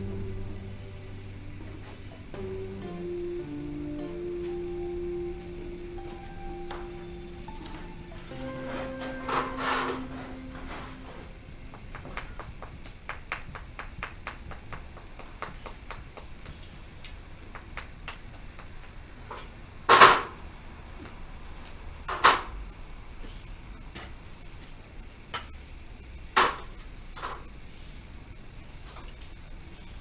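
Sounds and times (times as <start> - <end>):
masonry tools tapping stone: 11.9 - 16.7.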